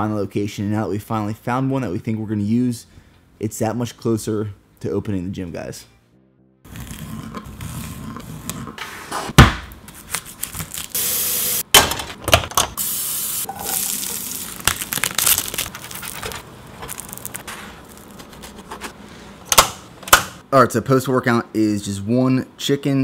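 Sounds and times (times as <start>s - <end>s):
hiss from frying pan: 12.8s - 14.1s
tortilla sizzling in pan: 13.1s - 14.6s.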